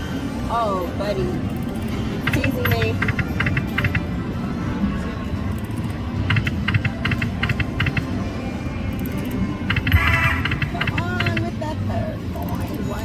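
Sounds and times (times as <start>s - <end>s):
slot machine sound effects and music: 5.8s - 8.2s, 9.0s - 11.4s.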